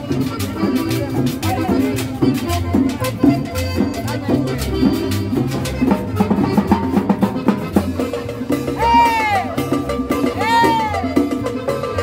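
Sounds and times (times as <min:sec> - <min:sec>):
hand drums and percussion: 0:00.0 - 0:12.0
upright double bass: 0:00.0 - 0:12.0.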